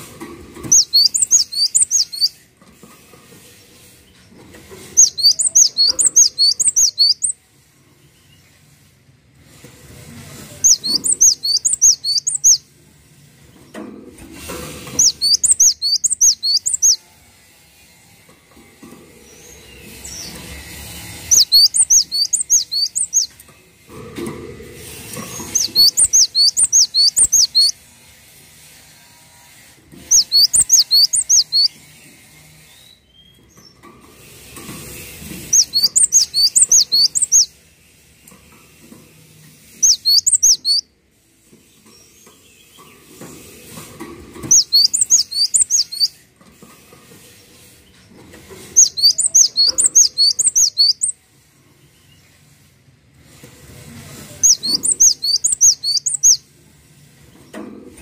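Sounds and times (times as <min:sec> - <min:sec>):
bird singing high ringing notes: 0:00.7 - 0:02.4, 0:05.0 - 0:07.4, 0:10.6 - 0:12.6, 0:15.0 - 0:17.0, 0:21.2 - 0:23.4, 0:25.5 - 0:27.8, 0:30.1 - 0:31.7, 0:35.5 - 0:37.5, 0:39.8 - 0:40.9, 0:44.5 - 0:46.2, 0:48.8 - 0:51.2, 0:54.4 - 0:56.4.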